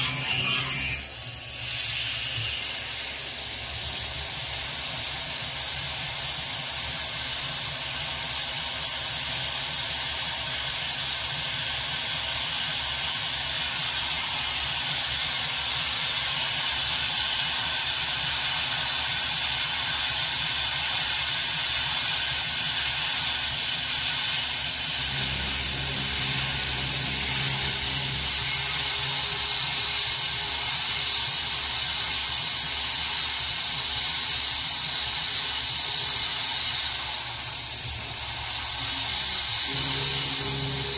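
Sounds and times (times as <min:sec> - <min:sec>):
milling machine cutting metal: 0:00.0 - 0:01.3, 0:23.5 - 0:40.9
coolant mist hissing: 0:00.1 - 0:09.2, 0:10.0 - 0:40.9
low hum: 0:24.9 - 0:29.8, 0:38.0 - 0:40.9.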